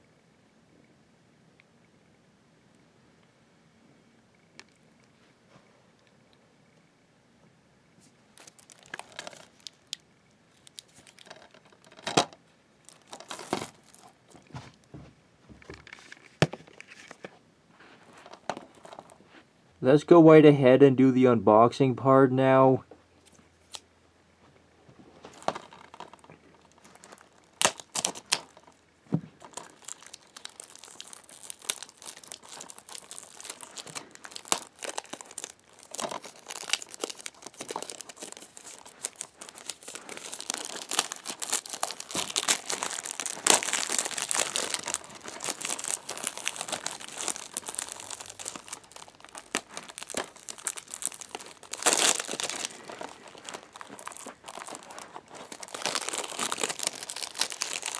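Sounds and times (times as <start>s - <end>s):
plastic wrap crinkling: 8.3s - 14.9s, 15.8s - 19.3s, 24.9s - 57.9s.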